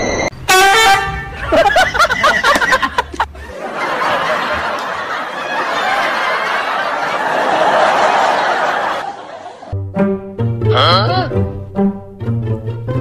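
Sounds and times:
crowd laughter: 1.2s - 9.8s.

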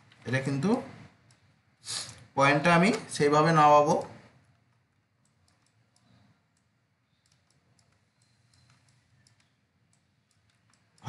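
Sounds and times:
computer mouse clicks: 1.1s - 1.5s, 4.0s - 11.0s.

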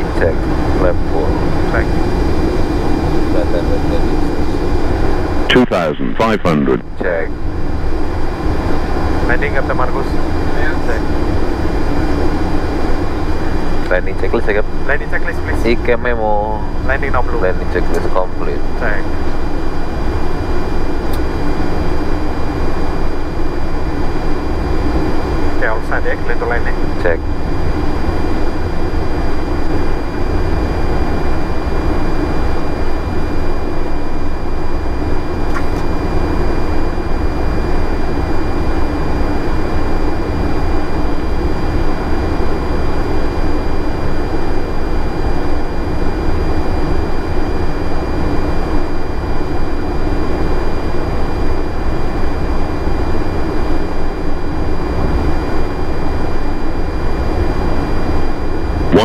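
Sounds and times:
cockpit rush and rumble: 0.0s - 44.9s, 57.0s - 59.0s.

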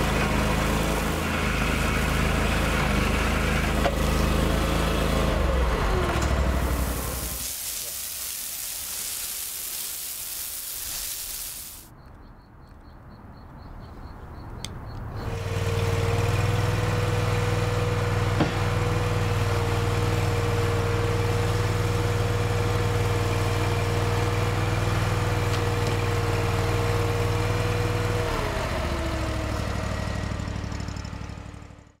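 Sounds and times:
loader engine whining: 0.0s - 7.4s, 14.9s - 31.8s.

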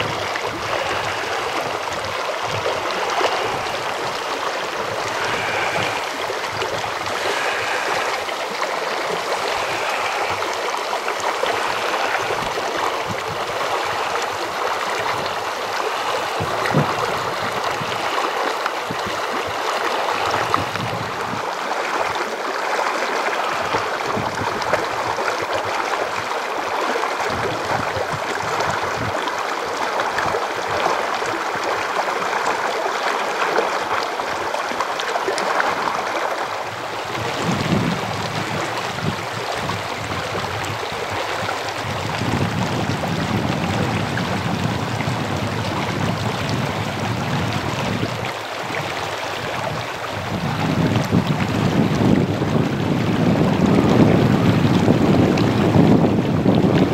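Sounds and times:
mountain stream rushing: 0.0s - 56.9s.

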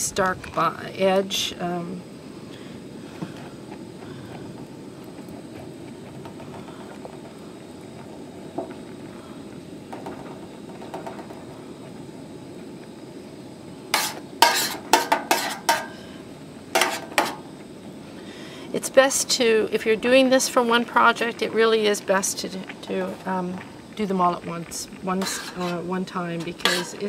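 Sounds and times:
steady low hiss: 0.0s - 27.0s
spoon stirring simmering liquid: 21.0s - 27.0s.

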